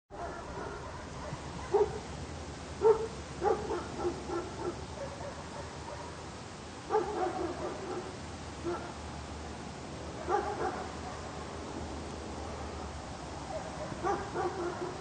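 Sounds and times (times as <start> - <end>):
dog barking: 0.1 - 2.1, 2.8 - 6.2, 6.9 - 9.0, 10.2 - 11.4, 13.4 - 15.0
outdoor background hiss: 0.1 - 15.0.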